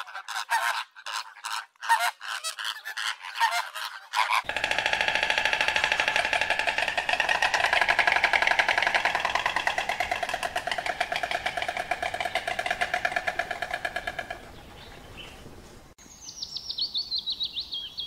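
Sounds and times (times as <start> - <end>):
stork bill-clattering: 4.4 - 14.6.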